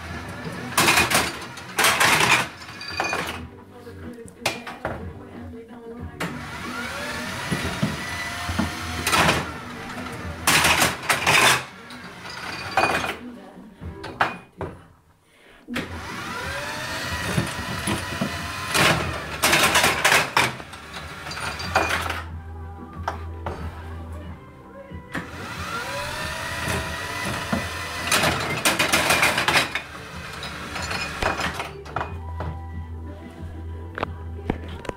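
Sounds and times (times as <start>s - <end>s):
glass bottles clattering: 0.4s - 3.5s, 8.6s - 13.3s, 17.2s - 22.3s, 26.6s - 32.2s
electric motor whining: 6.2s - 11.1s, 15.8s - 21.7s, 25.1s - 31.5s.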